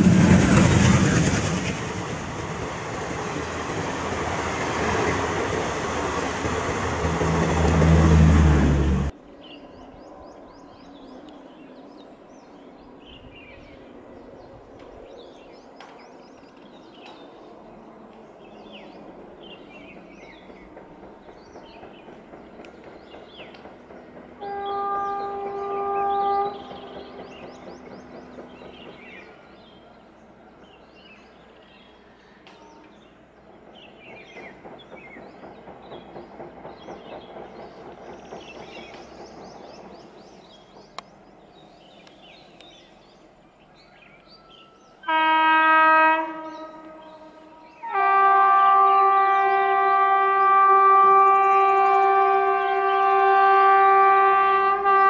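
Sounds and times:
rhythmic train wheel clatter: 0:00.0 - 0:08.3, 0:18.9 - 0:25.4, 0:26.6 - 0:29.5, 0:33.5 - 0:41.5
train rumbling: 0:00.0 - 0:09.2, 0:11.8 - 0:55.0
train horn blast: 0:24.4 - 0:27.1, 0:45.0 - 0:55.0.

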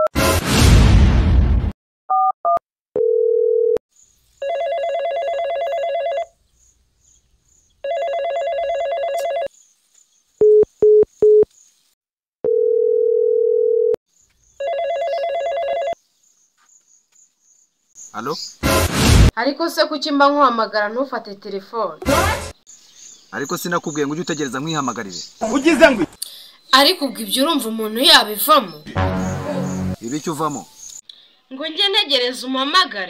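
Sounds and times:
phone ringing tone: 0:02.1 - 0:03.8, 0:04.4 - 0:06.4, 0:07.8 - 0:09.5, 0:12.4 - 0:14.0, 0:14.6 - 0:16.0.

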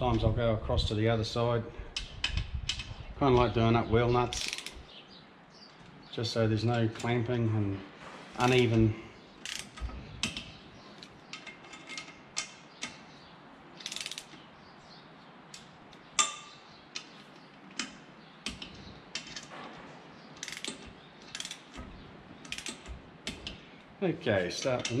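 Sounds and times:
socket ratchet clicking: 0:04.4 - 0:04.8, 0:09.4 - 0:10.5, 0:13.8 - 0:14.4, 0:20.4 - 0:21.8.

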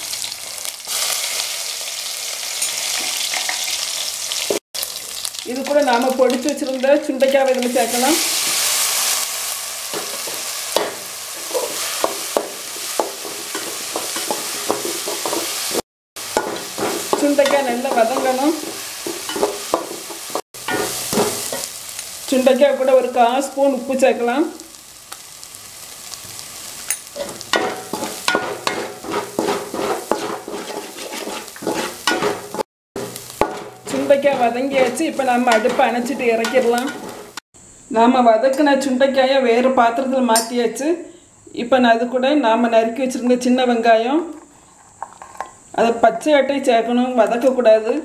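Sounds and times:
berries sizzling in oil: 0:00.0 - 0:37.4, 0:43.2 - 0:48.0
metal skimmer scraping a pot: 0:27.0 - 0:37.4.

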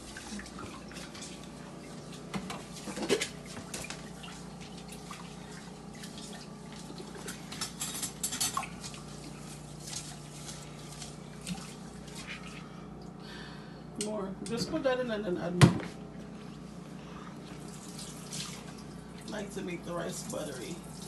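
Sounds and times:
faint steady hum: 0:00.0 - 0:21.0
water splashing and dripping: 0:17.6 - 0:19.4.

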